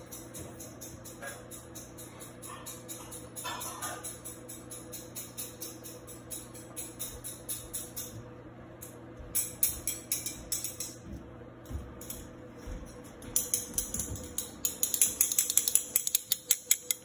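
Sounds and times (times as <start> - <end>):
metal spoons clinking on bowl: 0.0 - 8.1.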